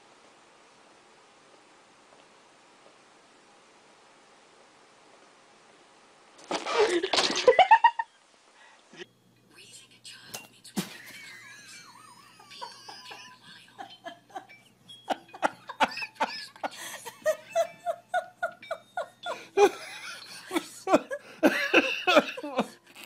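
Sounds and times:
plastic bag crinkling: 6.4 - 7.5
person laughing hard: 11.0 - 14.5, 15.1 - 22.8.

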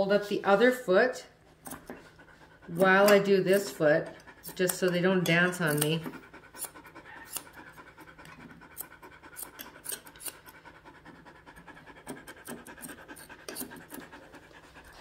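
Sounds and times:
grooming shears snipping hair: 1.6 - 2.1, 2.7 - 10.8, 11.4 - 15.0.

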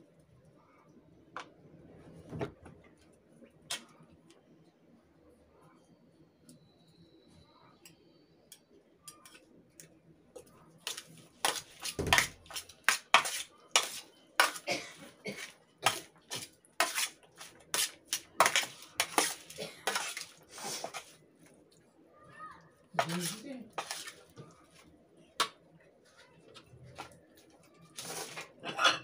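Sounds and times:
metal spoon scraping a tray: 11.4 - 14.6, 15.8 - 21.0.

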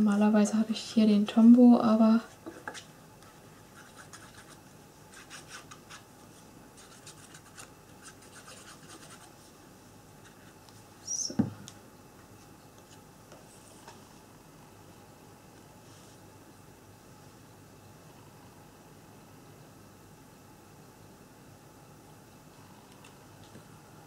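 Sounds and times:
knock on cutting mat: 11.4 - 11.6.

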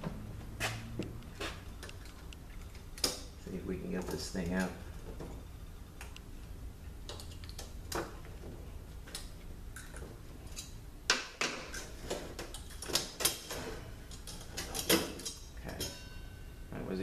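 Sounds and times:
metal picks clicking and scraping: 9.1 - 10.8, 11.7 - 16.0.

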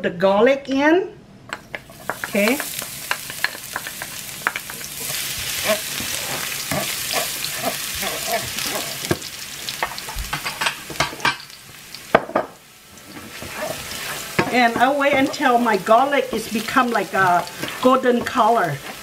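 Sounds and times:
garlic sizzling in oil: 1.6 - 19.0
spatula scraping pan: 1.9 - 9.2, 13.0 - 19.0.

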